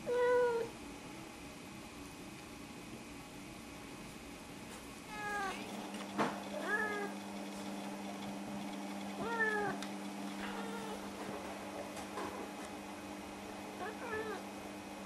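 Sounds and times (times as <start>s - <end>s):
cat meowing: 0.0s - 0.7s, 5.1s - 5.6s, 6.6s - 7.1s, 9.2s - 9.8s, 10.5s - 11.0s, 13.8s - 14.4s.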